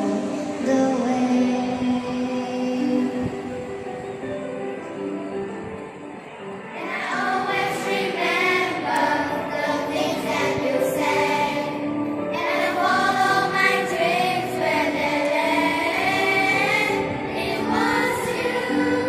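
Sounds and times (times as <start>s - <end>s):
musical accompaniment: 0.0s - 19.0s
children singing in unison: 6.7s - 19.0s.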